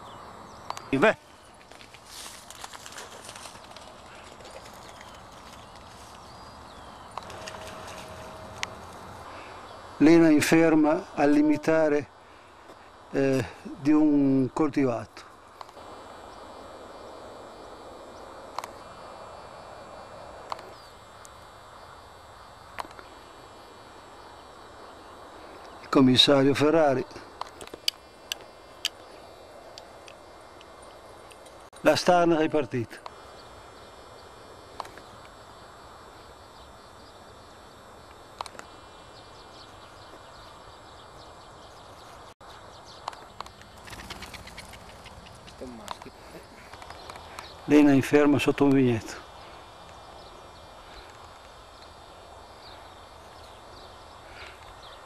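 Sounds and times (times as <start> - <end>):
outdoor ambience hiss: 0.0 - 55.0
sharp clicks: 0.6 - 0.9, 18.5 - 18.8, 34.7 - 35.3, 38.4 - 38.7.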